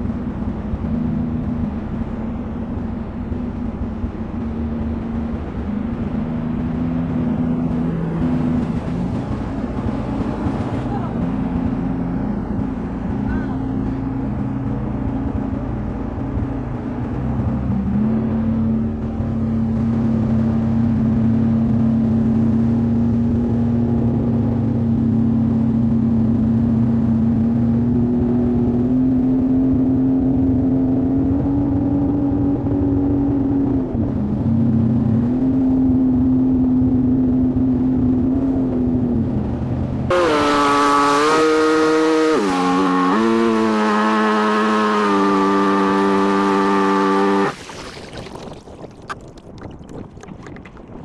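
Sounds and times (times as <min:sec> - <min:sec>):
jet ski engine: 0:00.0 - 0:51.0
wind noise: 0:47.3 - 0:51.0.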